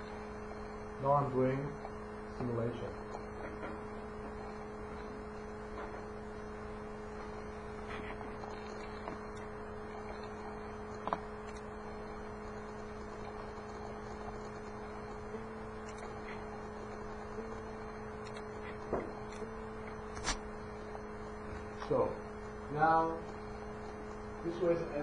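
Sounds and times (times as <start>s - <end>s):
steady electrical hum: 0.0s - 25.0s.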